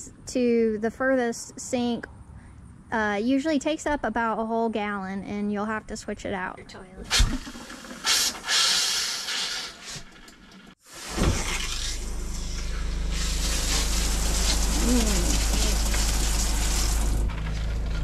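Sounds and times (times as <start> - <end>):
water pump humming: 11.0 - 17.4
faucet hissing: 13.1 - 17.2
shower head spraying: 13.1 - 17.2.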